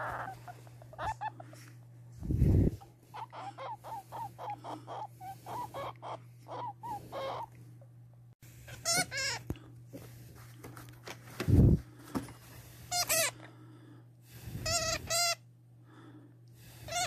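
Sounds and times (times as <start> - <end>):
hamster chirping squeaks: 0.0 - 1.5, 3.1 - 7.5, 8.7 - 9.4
hamster wavering high squeals: 0.0 - 1.5, 2.6 - 7.5, 8.7 - 9.4, 14.6 - 15.4.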